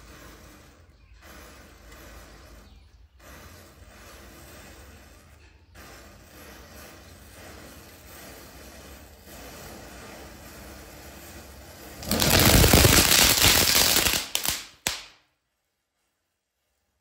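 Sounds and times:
matchsticks crackling: 0:01.3 - 0:15.2
firecracker rapid cracks: 0:11.8 - 0:15.4.

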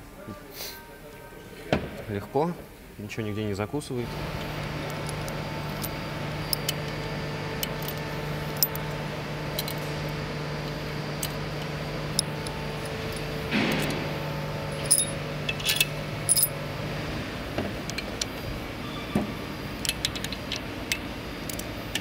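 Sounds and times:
steady low hum: 0:04.0 - 0:22.0
small metal parts clinking: 0:04.8 - 0:06.8, 0:07.6 - 0:09.9, 0:12.1 - 0:14.0, 0:14.7 - 0:16.6.

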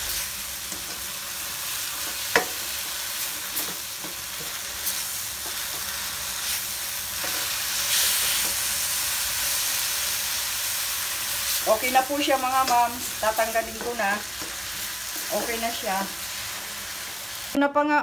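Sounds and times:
vegetables sizzling in a wok: 0:00.0 - 0:17.6
spatula scraping a pan: 0:00.1 - 0:09.6.

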